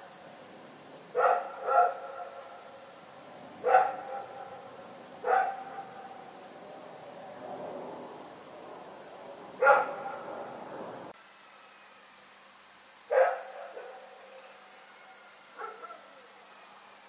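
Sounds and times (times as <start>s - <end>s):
dog barking with echo: 1.1s - 2.5s, 3.6s - 6.2s, 9.6s - 10.5s, 13.1s - 14.1s, 15.6s - 16.1s.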